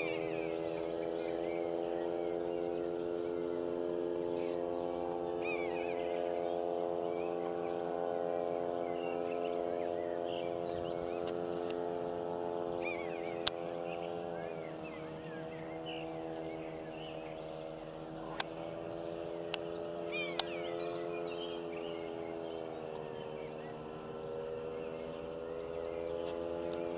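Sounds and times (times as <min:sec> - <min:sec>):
small birds chirping: 0:00.0 - 0:26.9
steady motor hum: 0:00.0 - 0:26.9
sharp clicks: 0:13.4 - 0:13.6, 0:18.2 - 0:20.6, 0:26.2 - 0:26.9.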